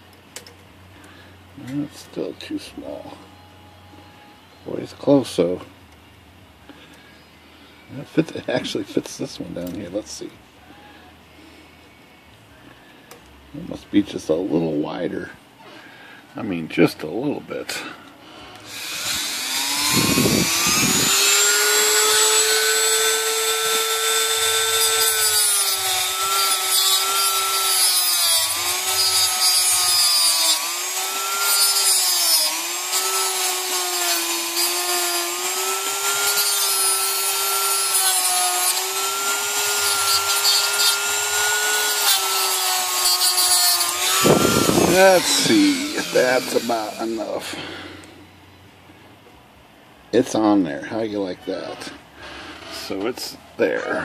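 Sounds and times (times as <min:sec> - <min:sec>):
rotary tool grinding steel: 0:18.7 - 0:47.5.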